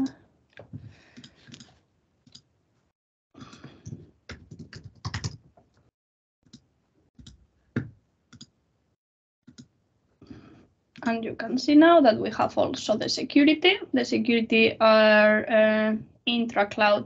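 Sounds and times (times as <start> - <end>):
keyboard typing: 3.4 - 5.8, 7.2 - 8.5.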